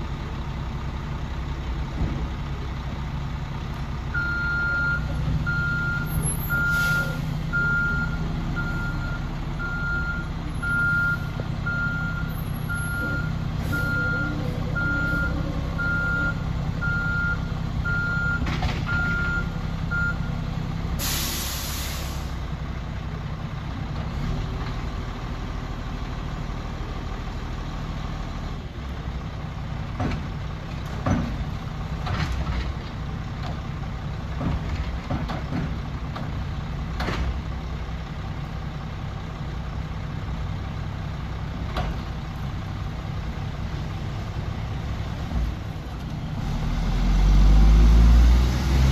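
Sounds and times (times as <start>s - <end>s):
diesel truck engine running: 0.0s - 48.9s
reversing alarm beeping: 4.2s - 20.3s
air brakes hissing: 6.2s - 7.3s, 21.0s - 22.4s.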